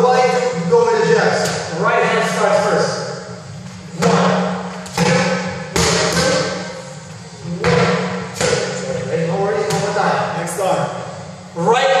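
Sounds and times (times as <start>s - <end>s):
fist and knee smacking pads: 4.9s - 6.6s.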